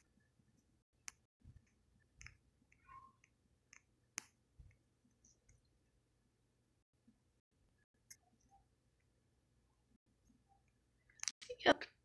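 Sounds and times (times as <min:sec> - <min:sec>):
faint clicks and taps: 0:00.0 - 0:05.8.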